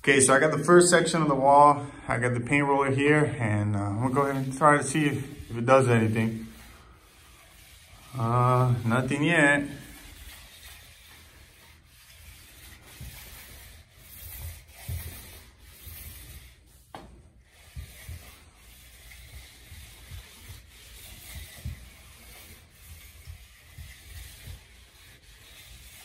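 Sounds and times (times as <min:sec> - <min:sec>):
paint roller rubbing on wall: 0:00.0 - 0:26.0.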